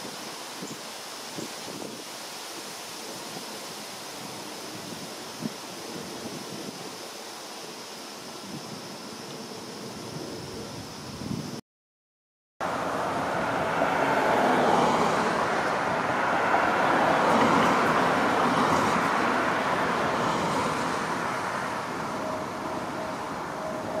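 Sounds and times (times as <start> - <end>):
background traffic: 12.6 - 24.0
car passing: 12.6 - 24.0.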